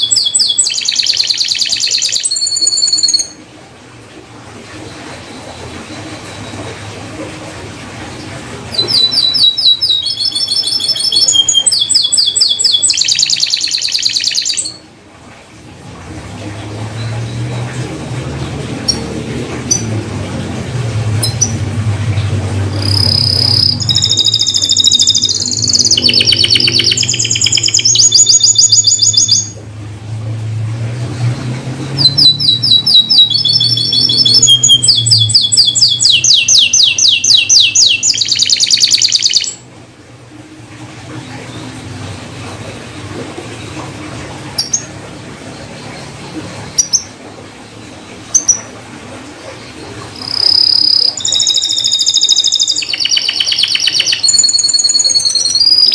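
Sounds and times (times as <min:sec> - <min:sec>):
canary trilling song: 0:00.0 - 0:03.5, 0:08.2 - 0:14.9, 0:16.6 - 0:29.6, 0:30.5 - 0:39.7, 0:43.6 - 0:48.8, 0:49.6 - 0:55.9
low hum: 0:15.1 - 0:28.5.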